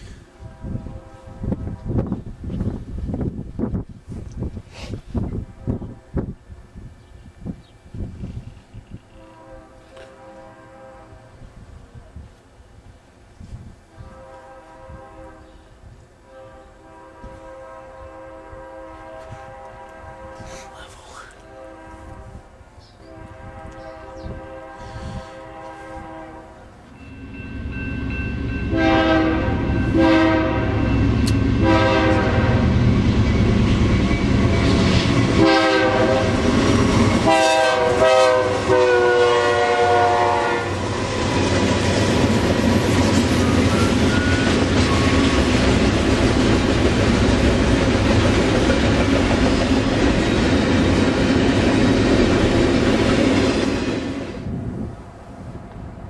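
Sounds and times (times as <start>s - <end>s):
freight train rumbling on rails: 0.0s - 56.0s
locomotive horn blasts: 0.4s - 1.9s, 5.3s - 6.3s, 9.1s - 11.5s, 13.9s - 20.8s, 21.4s - 27.3s, 28.6s - 32.8s, 34.6s - 40.8s.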